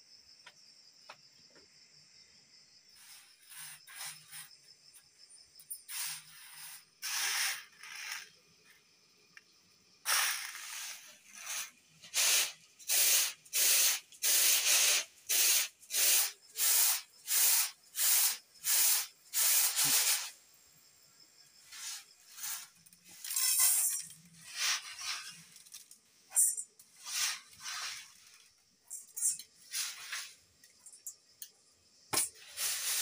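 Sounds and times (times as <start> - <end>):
rice scooped by hand rustling: 26.9 - 28.5.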